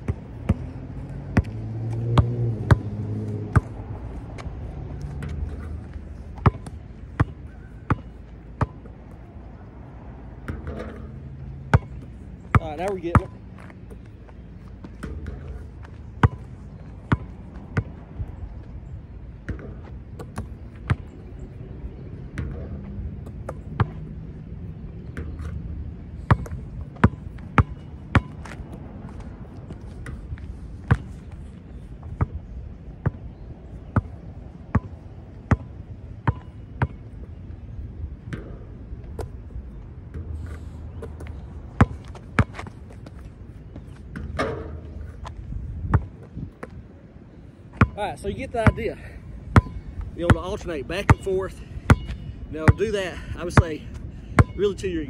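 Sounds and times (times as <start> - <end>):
basketball hitting backboard and bouncing: 10.5 - 13.3, 14.8 - 15.6, 26.3 - 28.6, 44.1 - 45.0, 49.6 - 50.5.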